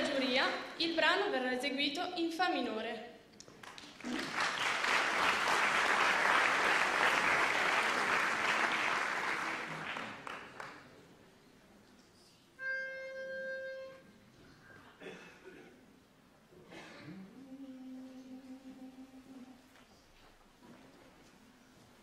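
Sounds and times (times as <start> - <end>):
audience applause: 3.6 - 10.9
pitch pipe note: 12.6 - 14.2.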